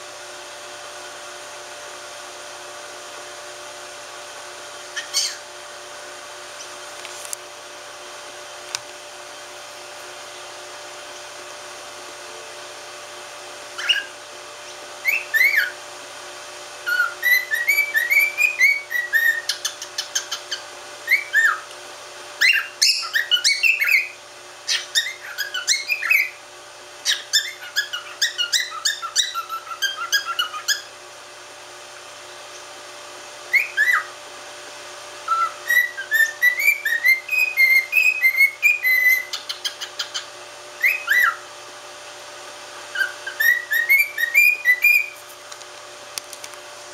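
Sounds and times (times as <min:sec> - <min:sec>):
cockatiel whistling: 0:04.9 - 0:05.5, 0:13.8 - 0:14.2, 0:15.0 - 0:15.8, 0:16.8 - 0:21.7, 0:22.4 - 0:26.4, 0:27.0 - 0:30.9, 0:33.5 - 0:34.1, 0:35.2 - 0:41.4, 0:42.9 - 0:45.2.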